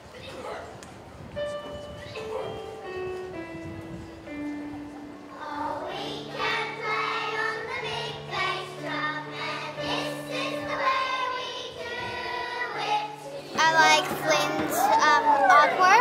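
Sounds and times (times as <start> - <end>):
long held low accompaniment: 1.4 - 16.0
children's choir singing: 5.3 - 16.0.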